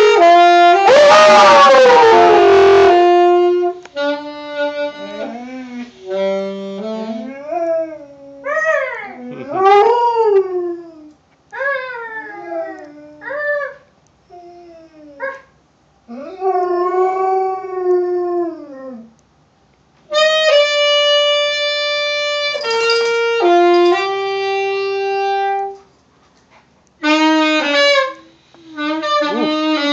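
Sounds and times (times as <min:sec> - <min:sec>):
saxophone long held notes: 0:00.0 - 0:07.9, 0:20.1 - 0:25.8, 0:27.0 - 0:29.9
dog howling: 0:00.8 - 0:03.1.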